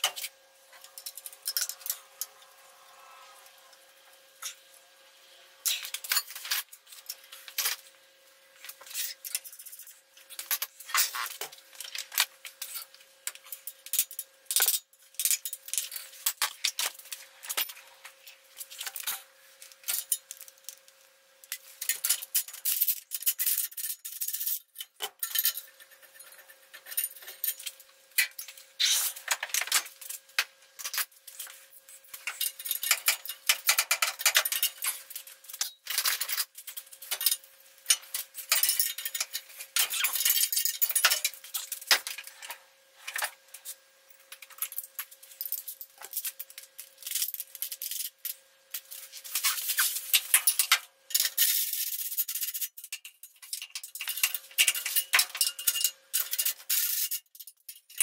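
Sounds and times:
metal tools clinking on metal: 0:00.0 - 0:02.3, 0:32.1 - 0:43.3, 0:44.3 - 0:58.0.

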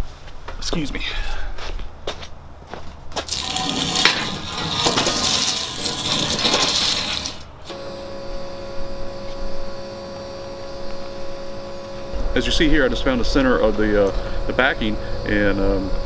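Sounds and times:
steady hum with held tones: 0:03.4 - 0:16.0.

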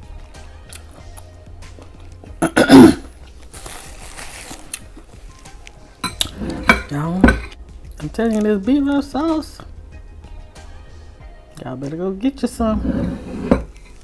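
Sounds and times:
faint background music: 0:00.0 - 0:14.0
fried chicken crunching: 0:03.2 - 0:06.3.

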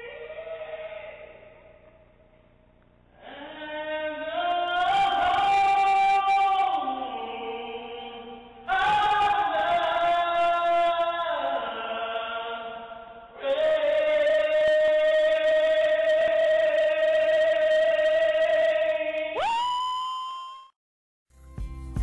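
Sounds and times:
man singing unaccompanied: 0:03.2 - 0:19.4.

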